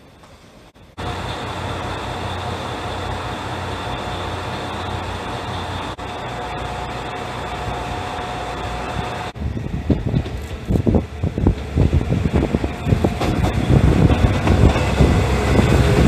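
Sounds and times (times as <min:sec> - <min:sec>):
station hall background: 0:00.0 - 0:16.0
diesel engine idling: 0:01.0 - 0:09.8.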